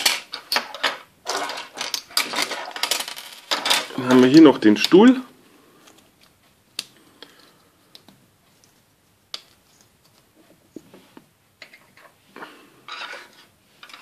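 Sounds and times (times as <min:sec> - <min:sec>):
plastic pieces clattering on table: 0:00.0 - 0:04.1, 0:12.9 - 0:14.0.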